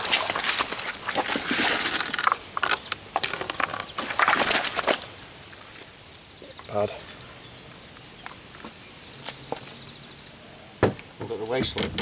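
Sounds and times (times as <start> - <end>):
fish splashing on wet plastic mat: 0.0 - 5.1.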